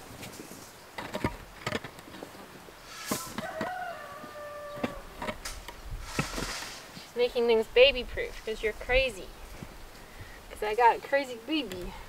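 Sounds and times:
hoe striking rocky soil: 0:02.8 - 0:03.8, 0:04.8 - 0:07.0
rooster crowing: 0:03.1 - 0:05.1.

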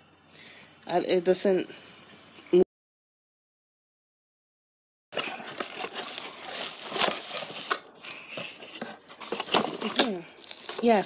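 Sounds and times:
bubble wrap crinkling and crackling: 0:05.2 - 0:11.0.

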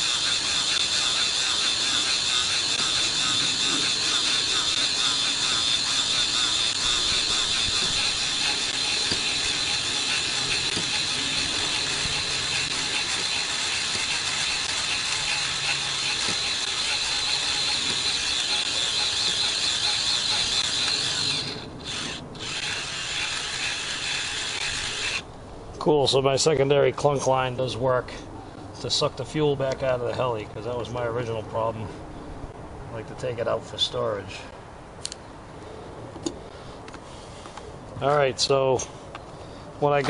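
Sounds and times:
fuel pump running: 0:00.0 - 0:25.2.

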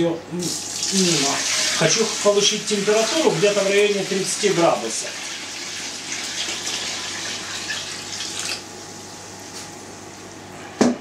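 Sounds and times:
water pouring and splashing: 0:00.6 - 0:08.6.

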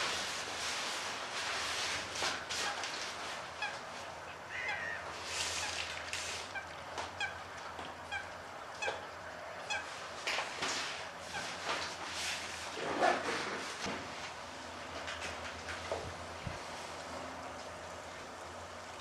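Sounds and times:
water splashing: 0:00.0 - 0:13.2
bird calling short notes: 0:04.5 - 0:05.8.

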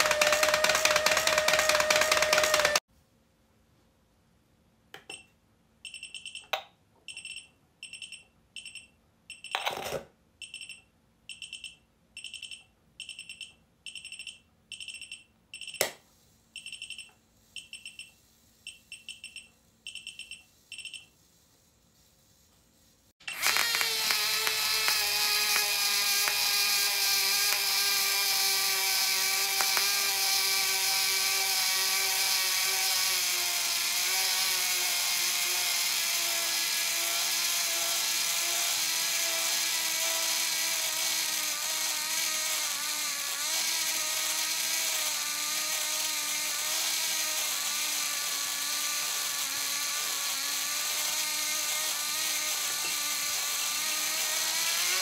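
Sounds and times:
small motor whirring whine: 0:00.0 - 0:02.8, 0:22.3 - 0:55.0.

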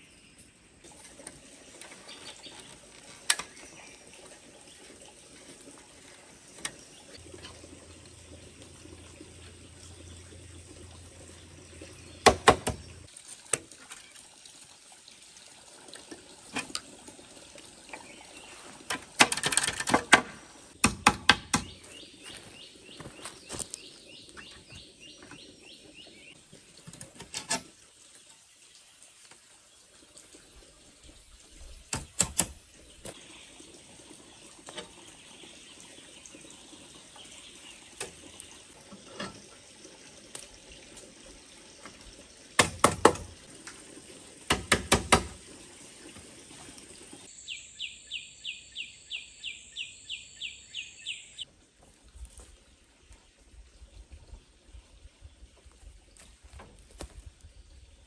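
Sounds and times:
steady outdoor hiss: 0:00.0 - 0:15.6, 0:16.2 - 0:58.0
sharp knocks on bamboo frame: 0:12.2 - 0:12.9, 0:19.2 - 0:21.8, 0:42.6 - 0:43.3, 0:44.5 - 0:45.4.

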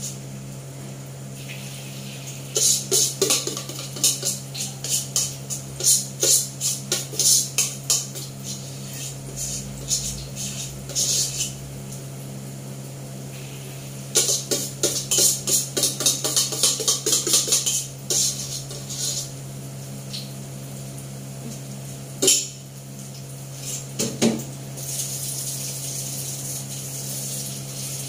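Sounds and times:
steady low hum: 0:00.0 - 0:23.8
metal spoon scraping a pot: 0:02.6 - 0:11.6, 0:14.2 - 0:19.3.

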